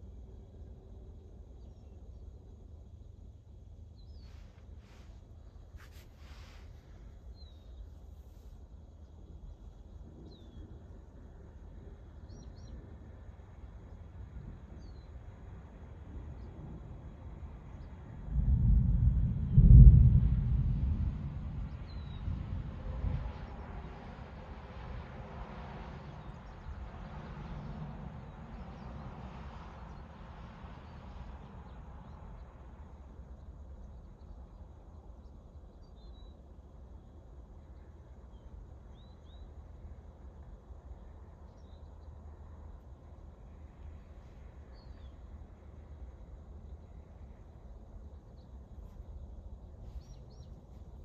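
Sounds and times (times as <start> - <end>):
wind rumble: 0.0 - 51.0
storm wind rushing: 18.2 - 23.7.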